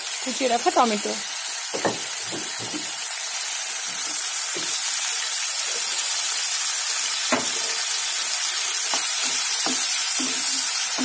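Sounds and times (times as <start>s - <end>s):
potatoes sizzling in oil: 0.0s - 11.0s.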